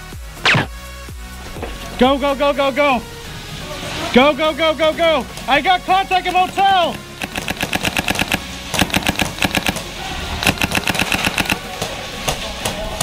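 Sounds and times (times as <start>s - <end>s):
airsoft rifle rapid firing: 6.4s - 11.8s.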